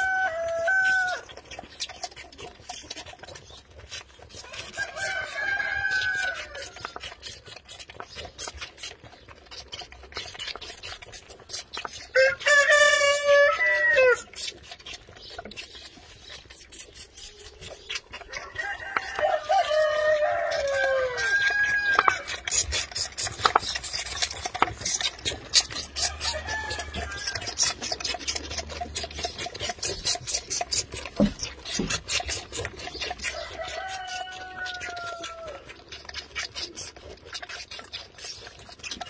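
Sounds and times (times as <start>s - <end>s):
rooster crowing: 0.0s - 1.2s, 4.7s - 6.8s, 12.2s - 14.2s, 18.4s - 22.3s, 26.0s - 27.6s, 33.3s - 35.6s
lambs sucking on bottles: 0.0s - 39.0s.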